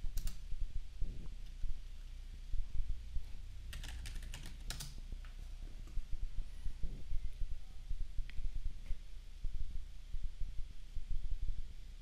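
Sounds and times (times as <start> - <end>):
keyboard typing: 0.0 - 0.4, 3.7 - 5.4.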